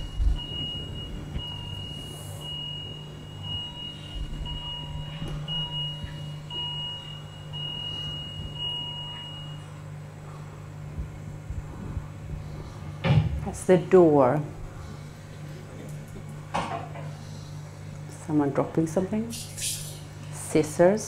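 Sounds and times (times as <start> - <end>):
medical alarm beeping: 0.0 - 10.0
low steady hum: 0.0 - 21.0.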